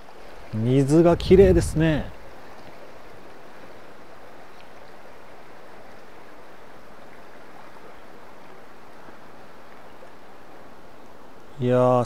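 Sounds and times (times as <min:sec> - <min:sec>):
river water flowing: 0:00.0 - 0:12.0.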